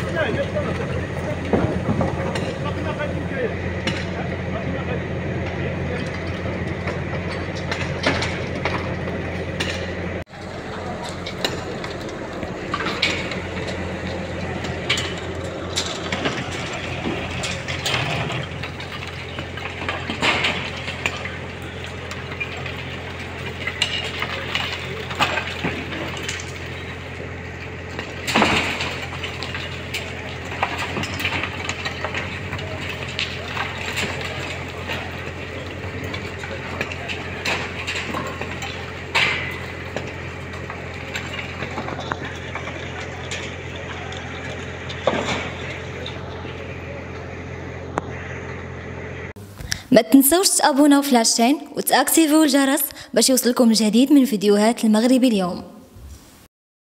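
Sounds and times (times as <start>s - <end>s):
masonry breaking and debris falling: 0.0s - 48.8s
truck engine running: 0.0s - 54.0s.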